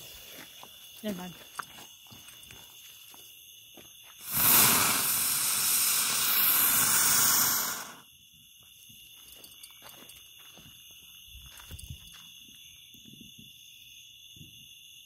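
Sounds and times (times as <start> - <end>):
ground firework hissing: 4.2 - 8.1.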